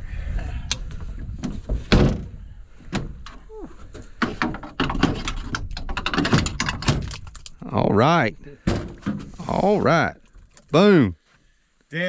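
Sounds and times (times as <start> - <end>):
hatch knocking and thudding: 1.7 - 3.3, 4.1 - 7.3, 8.6 - 9.4.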